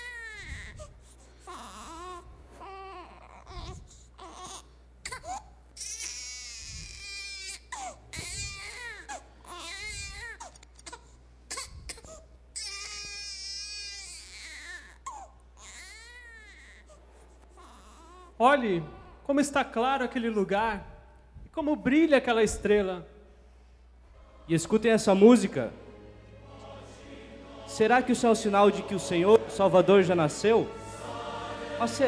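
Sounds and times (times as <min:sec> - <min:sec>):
newborn baby crying: 0:00.0 - 0:19.3.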